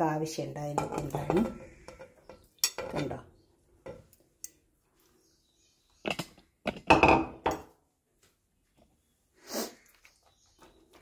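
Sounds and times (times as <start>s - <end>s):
dishes knocking: 0.8s - 3.1s, 6.1s - 7.7s
dishes clattering: 0.8s - 3.2s, 6.0s - 7.7s.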